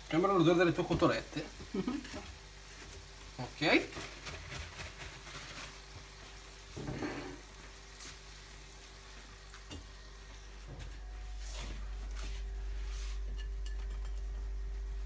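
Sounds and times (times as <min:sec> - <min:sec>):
food frying in oil: 0:00.0 - 0:11.1.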